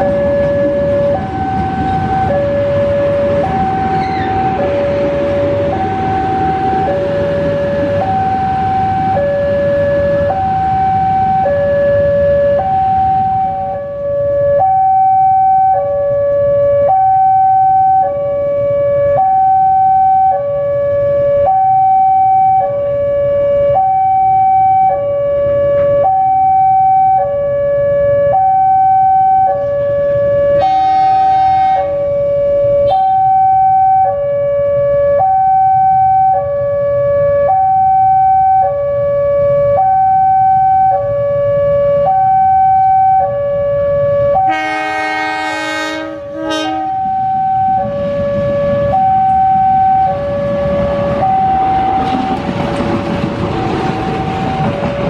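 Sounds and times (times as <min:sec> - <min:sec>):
level crossing alarm two-tone: 0:00.0 - 0:16.0, 0:16.7 - 0:18.3, 0:19.1 - 0:20.5, 0:21.3 - 0:22.8, 0:23.6 - 0:25.1, 0:26.0 - 0:27.3, 0:28.3 - 0:29.7, 0:30.5 - 0:34.2, 0:35.1 - 0:36.5, 0:37.4 - 0:41.1, 0:42.0 - 0:43.4, 0:46.4 - 0:48.0, 0:48.9 - 0:50.4, 0:51.1 - 0:52.1
train horn blast: 0:30.5 - 0:32.0, 0:32.8 - 0:33.3, 0:44.4 - 0:47.6.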